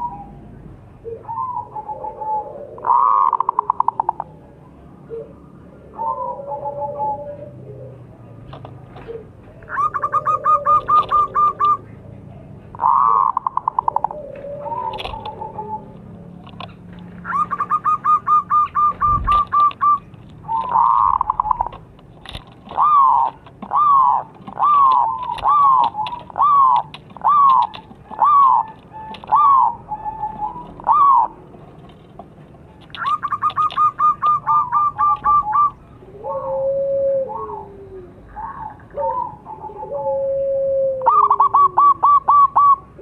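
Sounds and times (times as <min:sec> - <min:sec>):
dove cooing: 0:00.0 - 0:43.0
dove staccato notes: 0:12.7 - 0:36.5.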